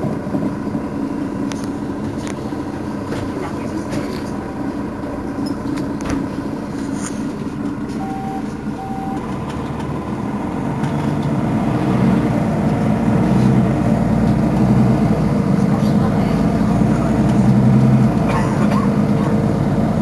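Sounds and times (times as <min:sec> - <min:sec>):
bus engine running: 0:00.0 - 0:20.0
short electronic beeps: 0:08.0 - 0:09.3.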